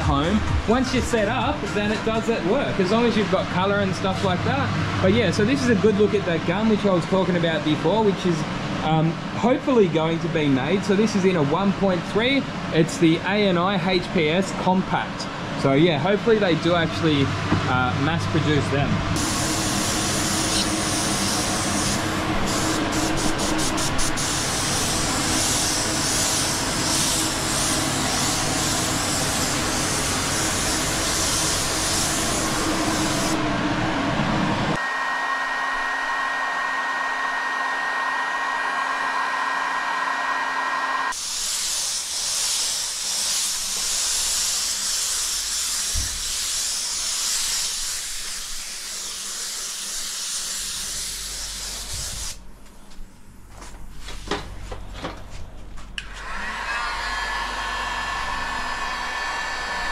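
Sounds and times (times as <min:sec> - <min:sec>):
spray gun hissing: 0:19.2 - 0:33.4, 0:41.1 - 0:52.4.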